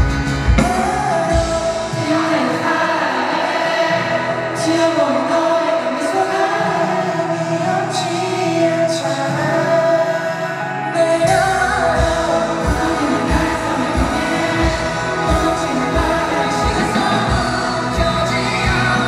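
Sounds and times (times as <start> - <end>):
acoustic guitar and band: 0.0 - 19.0
man singing: 0.4 - 19.0
low drum beats: 11.3 - 19.0.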